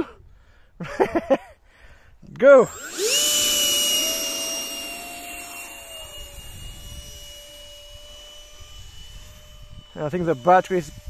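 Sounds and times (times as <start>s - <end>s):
electric fans whining: 2.4s - 11.0s.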